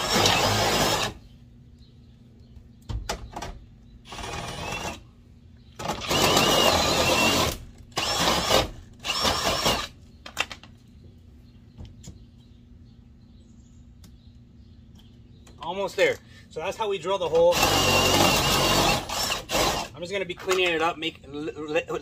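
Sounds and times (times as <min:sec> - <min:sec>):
cordless drill drilling metal: 0:00.0 - 0:01.2, 0:04.1 - 0:05.0, 0:05.8 - 0:10.0, 0:17.3 - 0:19.9.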